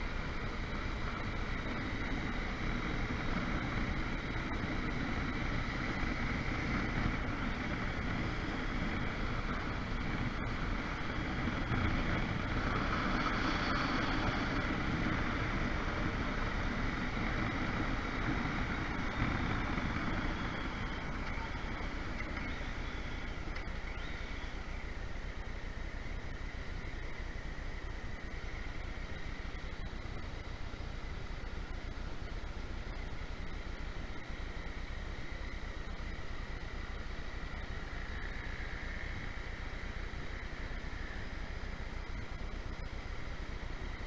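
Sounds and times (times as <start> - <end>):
wind rushing over microphone: 0.0 - 25.3
motorcycle engine: 0.0 - 25.4.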